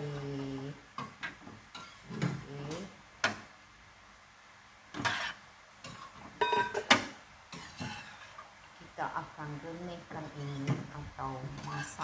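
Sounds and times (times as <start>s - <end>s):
ladle scraping a pot: 1.7s - 2.4s, 5.0s - 8.5s, 11.4s - 12.0s
metal ladle clinking on a pot: 5.9s - 7.0s.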